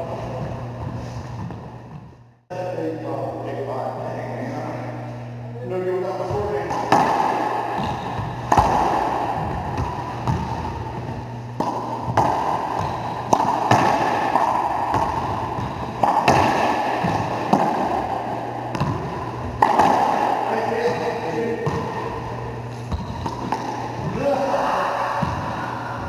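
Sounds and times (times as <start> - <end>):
ball cracking off rackets and walls: 6.6 - 21.0.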